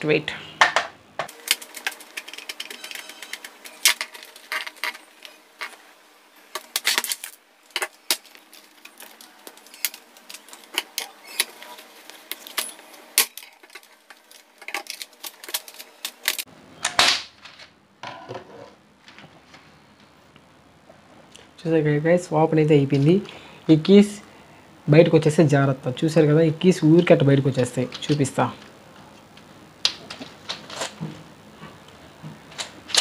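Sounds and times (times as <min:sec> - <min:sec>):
plastic case crackling: 0:06.6 - 0:16.4.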